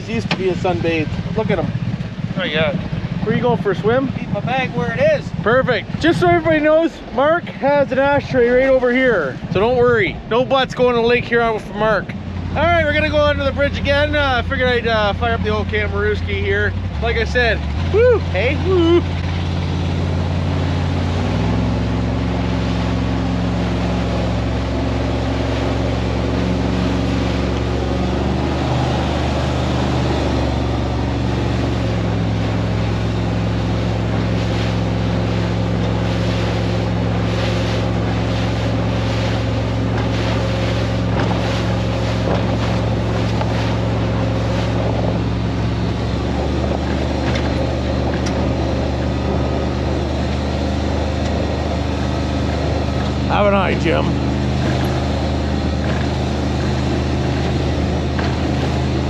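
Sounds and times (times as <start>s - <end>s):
hull slapping on waves: 0.0s - 59.0s
powerboat engine running: 0.0s - 59.0s
wind and water rushing: 0.0s - 59.0s.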